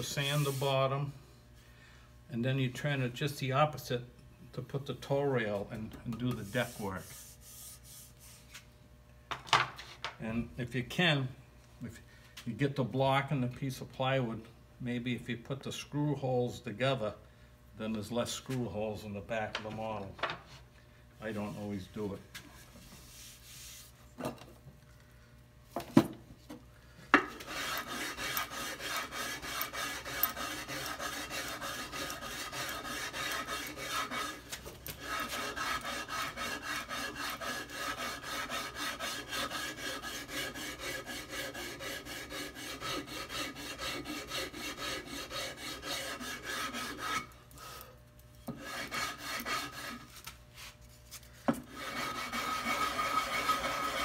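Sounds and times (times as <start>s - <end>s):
sandpaper rubbing on wood: 0.0s - 0.8s, 6.3s - 8.6s, 23.1s - 24.0s, 27.4s - 47.3s, 48.6s - 50.8s, 51.7s - 54.0s.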